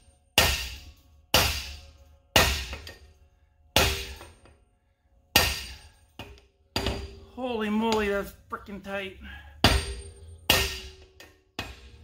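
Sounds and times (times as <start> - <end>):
hammer striking metal punch: 0.0 - 4.6, 5.3 - 7.3, 9.6 - 12.0.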